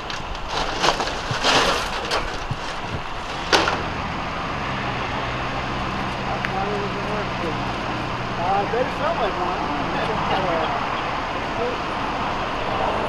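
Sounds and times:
scraping noises: 0.0 - 4.0
vehicle engine idling: 0.0 - 13.0.

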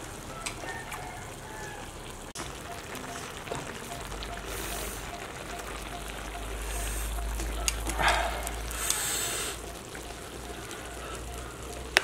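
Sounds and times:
chopsticks clicking on wooden dish: 7.4 - 8.0.

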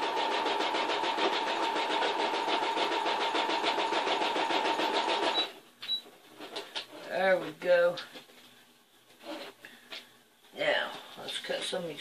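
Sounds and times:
sewing machine running: 0.0 - 5.5.

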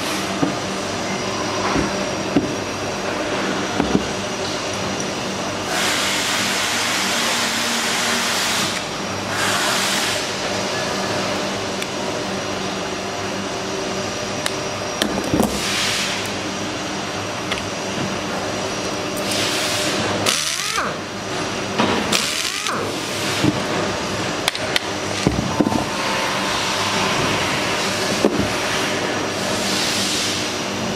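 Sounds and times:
machinery hum: 0.0 - 30.9.

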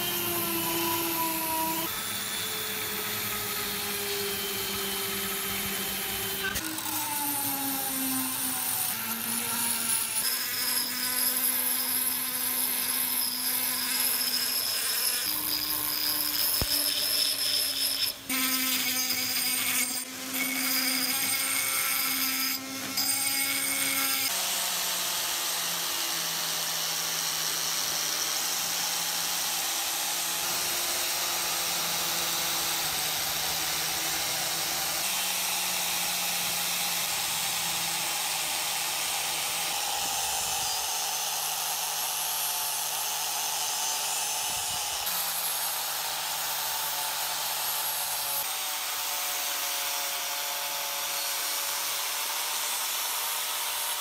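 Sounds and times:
rotary tool grinding metal: 0.0 - 24.6, 25.2 - 49.8.

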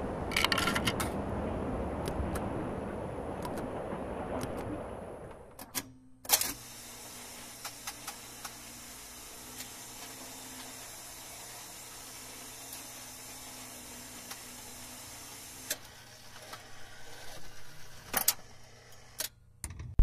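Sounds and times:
rushing noise: 0.0 - 5.6
machine humming: 6.6 - 15.7
light ticks of machine: 7.6 - 8.6.

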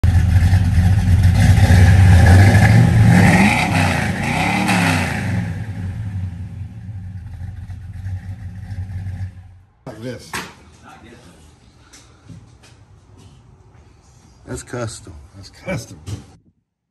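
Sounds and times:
car engine revving and idling: 0.0 - 9.7.

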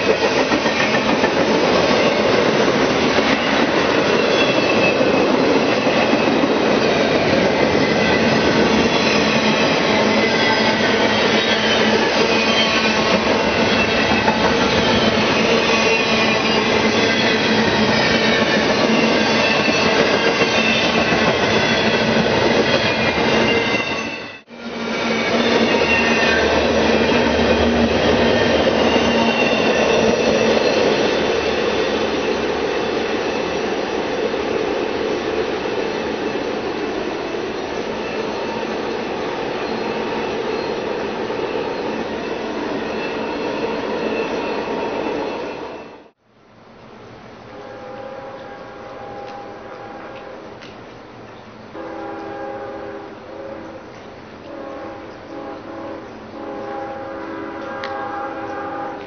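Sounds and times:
train wheels rushing on rail: 0.0 - 46.2, 47.0 - 59.0
high wheel squealing: 0.2 - 34.2, 35.8 - 46.1.

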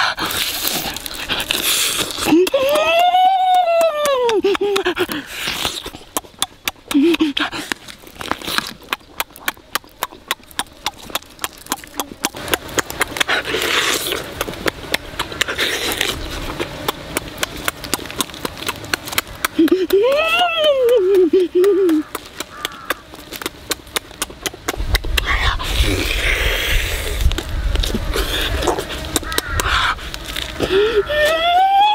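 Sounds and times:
open-mouthed chewing and lip-smacking: 0.0 - 31.4
person humming: 2.2 - 5.3, 19.5 - 22.2, 30.6 - 31.9.

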